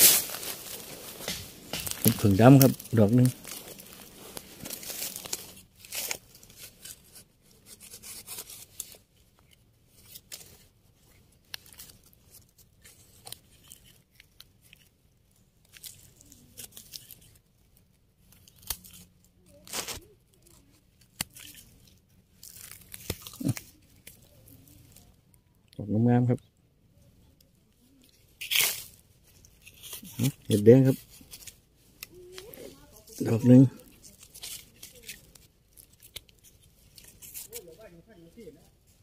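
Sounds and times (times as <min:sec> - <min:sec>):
knife scraping dry soil: 0:00.0 - 0:09.1, 0:18.4 - 0:20.0, 0:28.1 - 0:38.2
rustles: 0:00.0 - 0:39.0.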